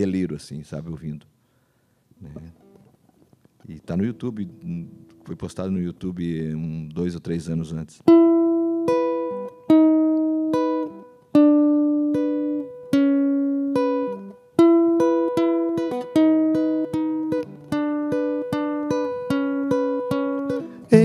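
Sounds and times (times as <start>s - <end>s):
acoustic guitar playing: 2.3s - 5.9s, 8.0s - 21.0s.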